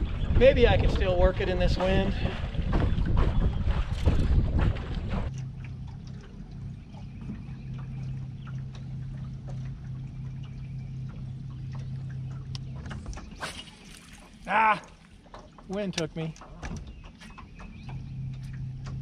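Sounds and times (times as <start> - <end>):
wind on microphone: 0.0 - 5.4
boat motor humming: 0.0 - 19.0
water sounds: 0.0 - 19.0.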